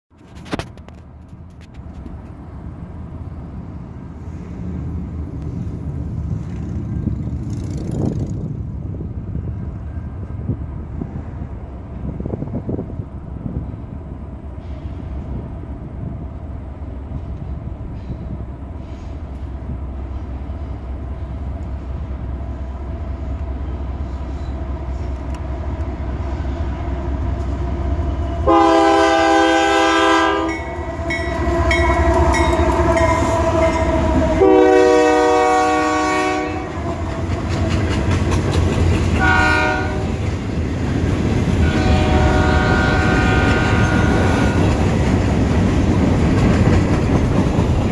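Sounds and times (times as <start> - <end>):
diesel locomotive engine rumble: 0.1 - 47.9
freight cars rolling past: 0.2 - 47.9
locomotive air horn blasts: 28.4 - 37.3, 39.2 - 40.2, 41.6 - 44.8.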